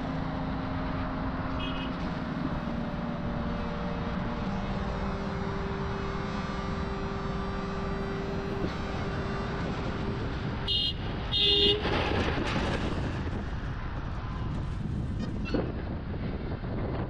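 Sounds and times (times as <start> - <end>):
road traffic noise: 0.0 - 17.0
vehicle horn honking: 1.6 - 2.0, 10.6 - 11.9.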